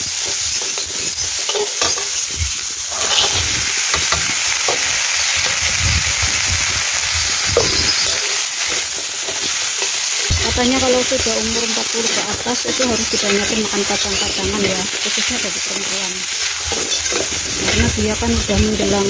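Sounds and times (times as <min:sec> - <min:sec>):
onions sizzling in oil: 0:00.0 - 0:19.0
metal spatula scraping wok: 0:02.8 - 0:05.6, 0:07.6 - 0:19.0.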